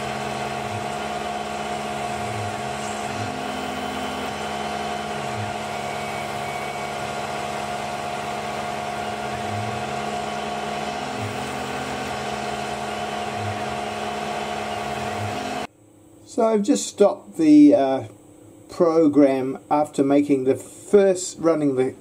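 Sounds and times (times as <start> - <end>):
milling machine whining: 0.0 - 15.7
low machine hum: 0.0 - 22.0.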